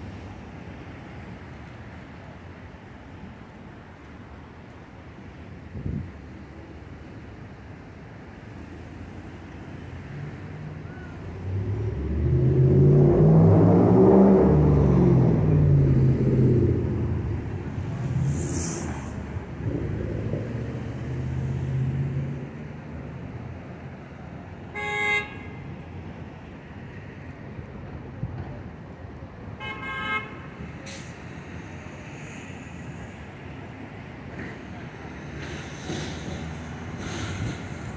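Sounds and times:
vehicle passing close: 0:11.3 - 0:22.8
car horn toot: 0:24.8 - 0:25.6, 0:29.6 - 0:30.4.

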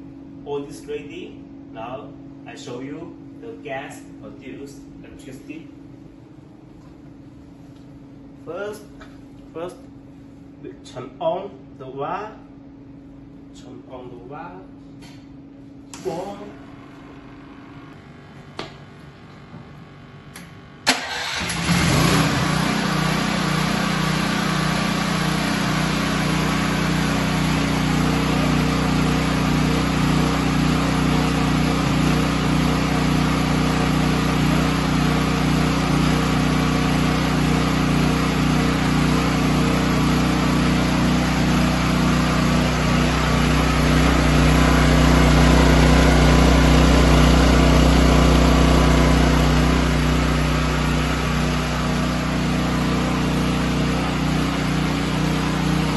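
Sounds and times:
generator engine running: 0:15.9 - 0:55.9.

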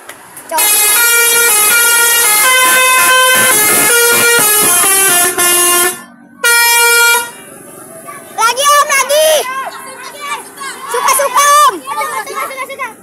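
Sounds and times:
musical air horns playing a tune: 0:00.6 - 0:07.4.

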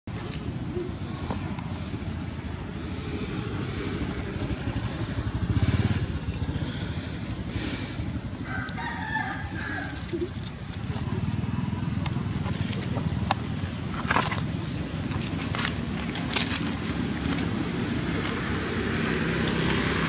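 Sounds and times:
steady low rumble: 0:00.1 - 0:19.0
rooster crowing: 0:08.4 - 0:10.2.

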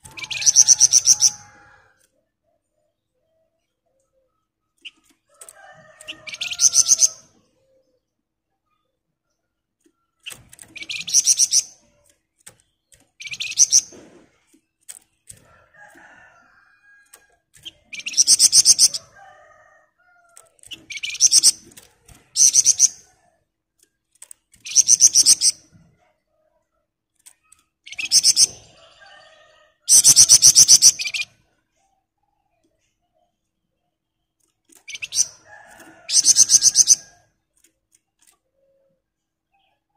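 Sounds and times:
songbird rattling trills: 0:00.0 - 0:01.5, 0:06.0 - 0:07.2, 0:10.2 - 0:12.0, 0:12.9 - 0:13.9, 0:17.0 - 0:19.2, 0:20.6 - 0:23.1, 0:24.5 - 0:25.7, 0:34.7 - 0:37.2.

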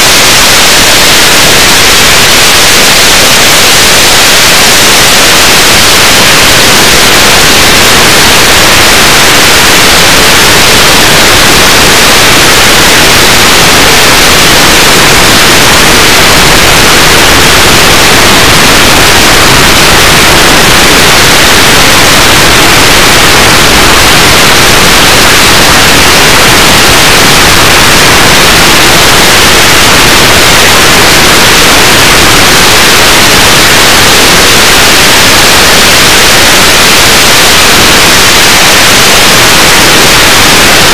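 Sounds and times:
loud steady static hiss: 0:00.0 - 0:40.9.

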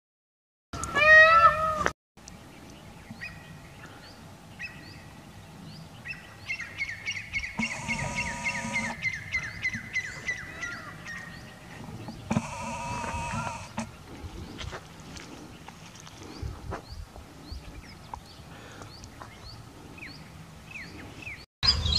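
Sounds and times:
birds chirping: 0:02.2 - 0:21.9
wavering bird call: 0:06.1 - 0:11.6.

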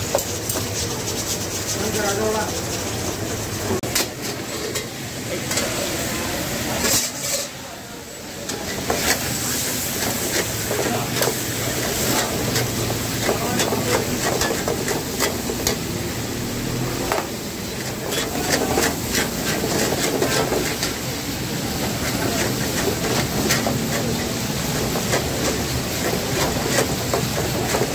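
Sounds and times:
chicken frying in hot oil: 0:00.0 - 0:27.9
metal ladle scraping a pan: 0:06.8 - 0:07.6, 0:17.7 - 0:21.0.

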